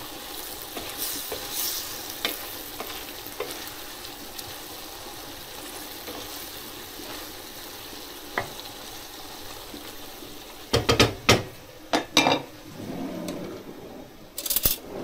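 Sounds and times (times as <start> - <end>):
meat sizzling in a frying pan: 0.0 - 12.3
pan knocking on hob: 10.7 - 12.5.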